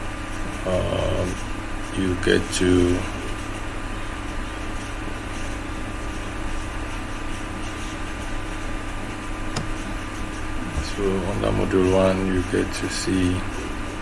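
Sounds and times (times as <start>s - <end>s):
faint steady whine: 0.0s - 14.0s
sharp click: 9.5s - 9.8s.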